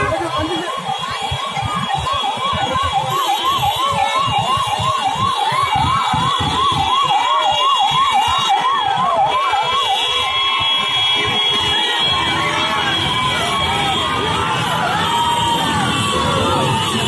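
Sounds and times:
electronic siren yelping: 0.0s - 17.0s.

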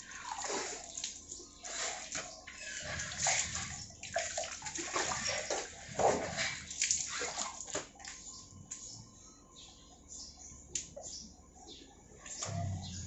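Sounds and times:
water splashing on face: 0.1s - 8.2s.

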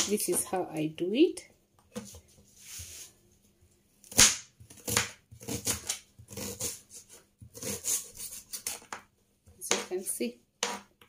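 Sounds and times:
knife cutting onion on board: 4.0s - 9.0s.

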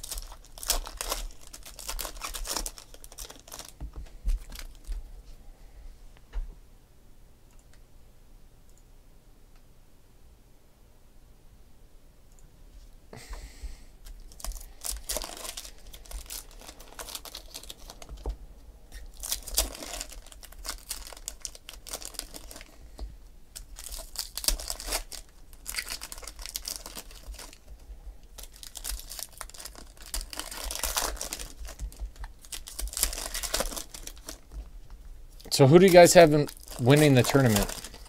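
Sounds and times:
foil wrappers tearing and crinkling: 0.0s - 3.8s, 4.4s - 4.9s, 14.0s - 18.3s, 18.9s - 22.8s, 23.6s - 38.0s.

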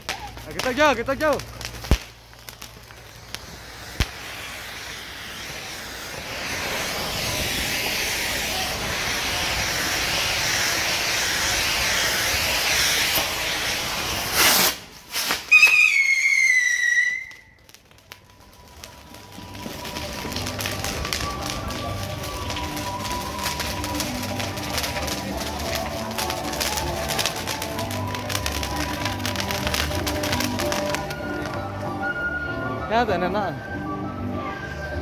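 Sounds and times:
fireworks spraying hiss: 0.0s - 32.4s
falling whistle: 15.5s - 17.6s.

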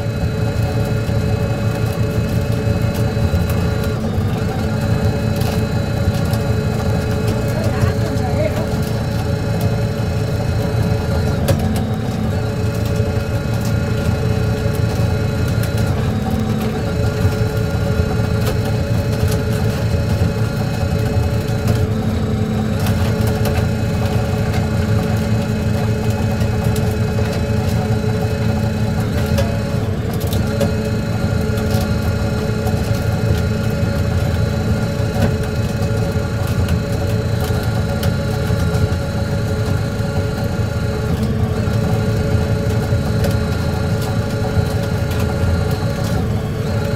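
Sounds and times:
boat diesel engine droning: 0.0s - 46.9s.

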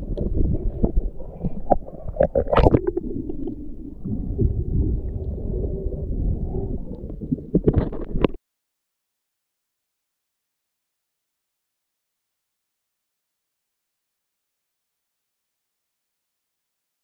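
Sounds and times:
bubbly gurgles: 0.0s - 8.4s
muffled underwater rumble: 0.0s - 8.4s.

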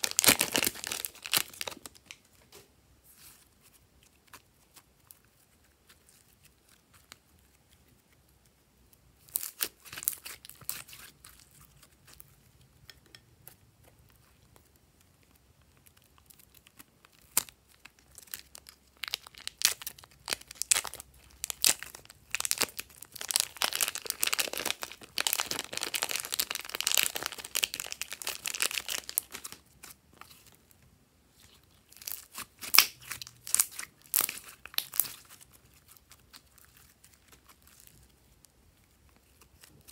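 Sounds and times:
plastic bag crinkling and tearing: 0.0s - 2.3s, 9.2s - 12.2s, 15.8s - 30.6s, 31.4s - 39.9s
wet slime squishing: 3.0s - 39.9s.

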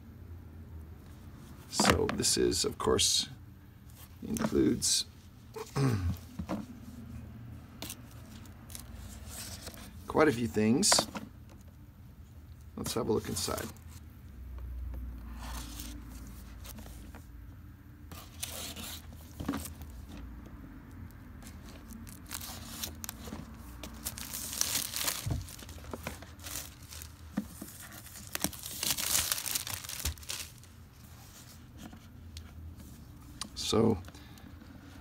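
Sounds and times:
plastic wrap tearing and crinkling: 21.8s - 30.8s.

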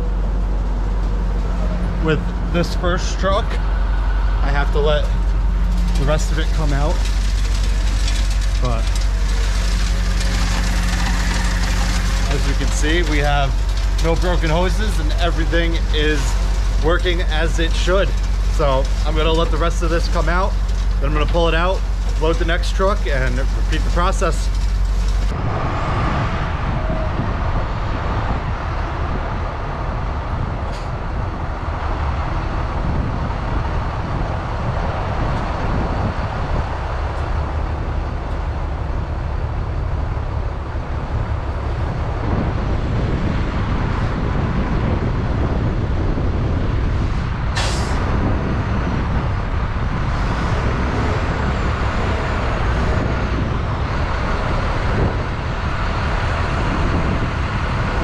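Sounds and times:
diesel engines running: 0.0s - 58.0s
short hiss of air: 47.6s - 48.0s.

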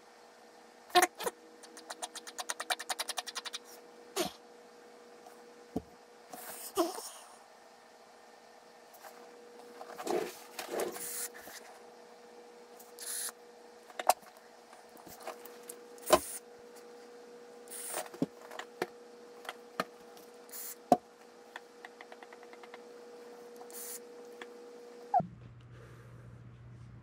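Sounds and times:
steady room hum: 0.0s - 27.0s.

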